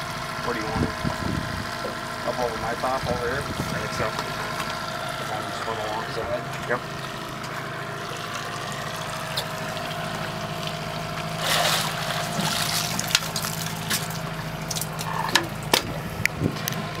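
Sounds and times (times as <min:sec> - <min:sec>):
outboard motor idling: 0:00.0 - 0:17.0
water lapping at hull: 0:08.0 - 0:15.8
splash of landing net: 0:11.4 - 0:14.2.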